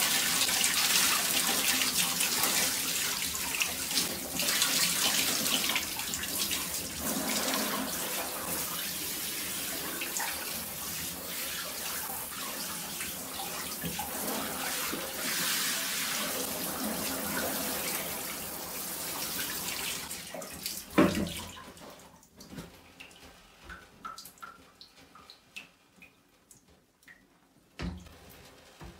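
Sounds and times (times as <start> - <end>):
water dripping: 0.0 - 14.2, 19.4 - 28.0.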